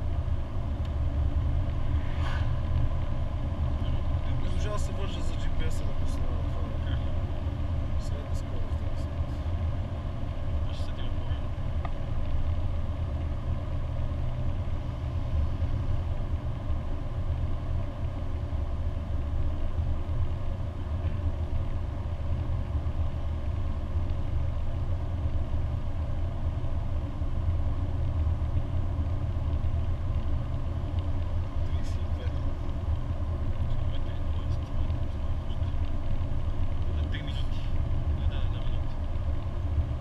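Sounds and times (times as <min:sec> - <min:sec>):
car engine and road drone: 0:00.0 - 0:40.0.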